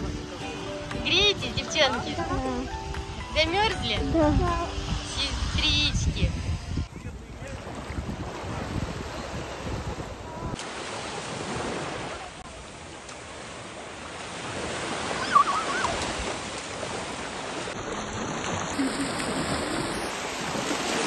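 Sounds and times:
small waves breaking on sandy shore: 0:00.0 - 0:21.0
water splashing in shallows: 0:10.5 - 0:21.0
high warbling cry: 0:15.2 - 0:16.0.

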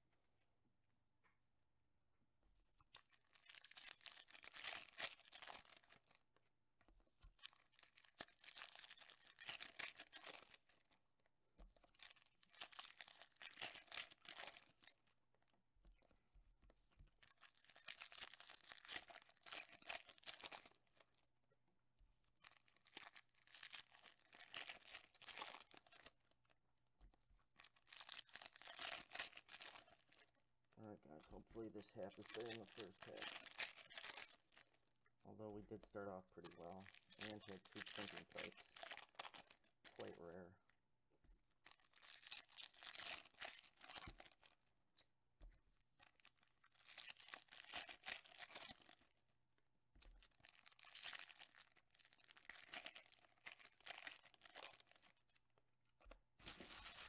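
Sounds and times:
foil wrappers tearing and crinkling: 0:03.3 - 0:06.2, 0:07.4 - 0:10.8, 0:11.9 - 0:14.8, 0:17.4 - 0:20.8, 0:22.5 - 0:26.1, 0:27.6 - 0:30.2, 0:31.6 - 0:34.6, 0:36.5 - 0:40.3, 0:41.7 - 0:44.6, 0:46.1 - 0:49.1, 0:50.4 - 0:55.2, 0:56.4 - 0:57.0.

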